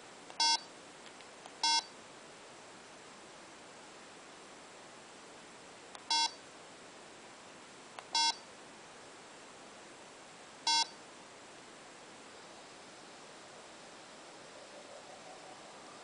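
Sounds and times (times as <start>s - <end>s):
short electronic beeps: 0.4s - 0.7s, 1.6s - 1.9s, 6.1s - 6.4s, 8.2s - 8.4s, 10.7s - 11.0s.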